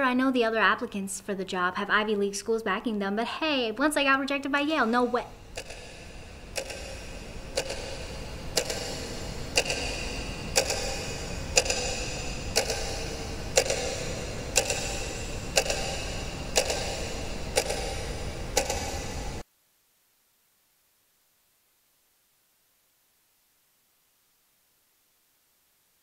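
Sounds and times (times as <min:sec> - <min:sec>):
wall clock ticking: 0:04.5 - 0:19.4.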